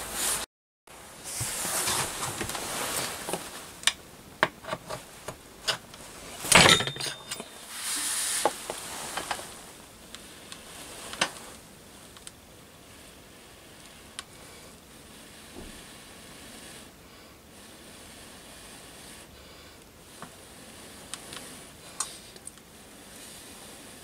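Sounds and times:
handling clicks and rustles: 0:01.3 - 0:12.4.

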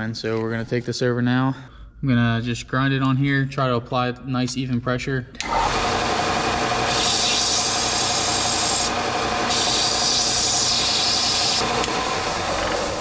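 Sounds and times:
belt sander running: 0:05.4 - 0:13.0
metal rod grinding hiss: 0:06.9 - 0:08.9, 0:09.5 - 0:11.6.

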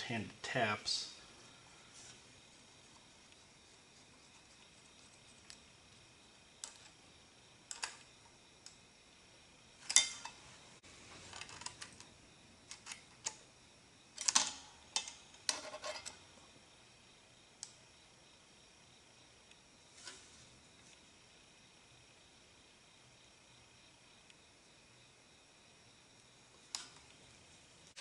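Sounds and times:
small metal parts clicking: 0:07.7 - 0:08.8, 0:14.2 - 0:16.2.

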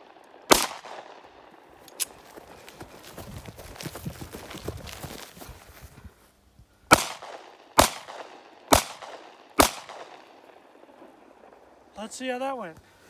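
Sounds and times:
handgun shots: 0:00.5 - 0:01.1, 0:06.9 - 0:10.3.

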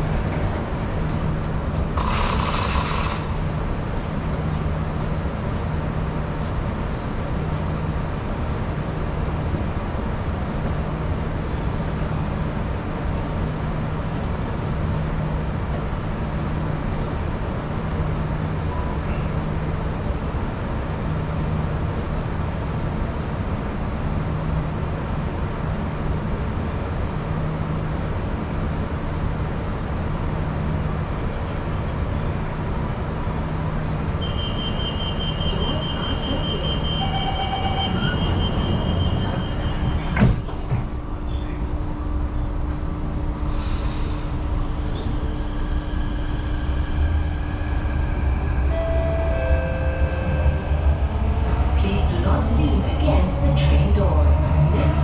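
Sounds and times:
train hum with pulsing drone: 0:00.0 - 0:55.0
rapid high door warning beeps: 0:34.2 - 0:40.2
train doors sliding shut: 0:36.3 - 0:41.6.

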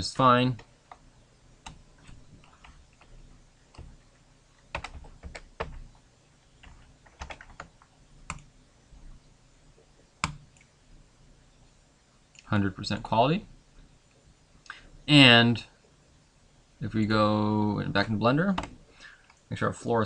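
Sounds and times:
keyboard typing: 0:01.6 - 0:06.0, 0:06.6 - 0:08.5.

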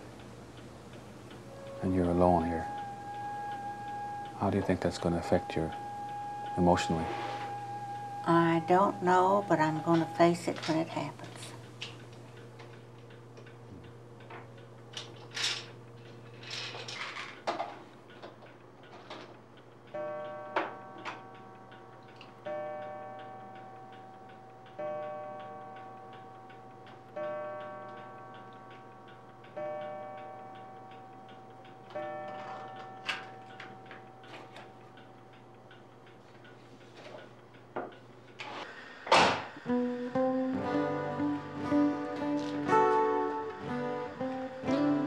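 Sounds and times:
clock ticking: 0:00.0 - 0:14.9, 0:17.4 - 0:38.4, 0:39.6 - 0:45.0
low steady hum: 0:00.0 - 0:45.0
clock chiming bell-like strikes: 0:01.5 - 0:11.5, 0:19.9 - 0:35.3.

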